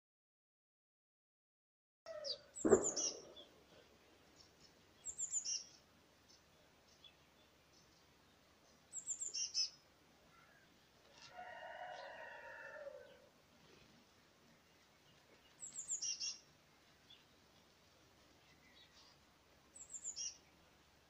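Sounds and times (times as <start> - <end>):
small bird chirping: 2.1 - 11.3, 14.6 - 17.7, 18.3 - 20.6.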